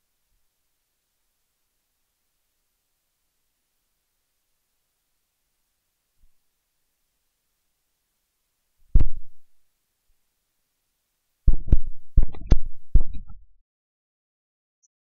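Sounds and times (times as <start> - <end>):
low thumps and rumbles on microphone: 8.9 - 9.5, 11.5 - 13.5.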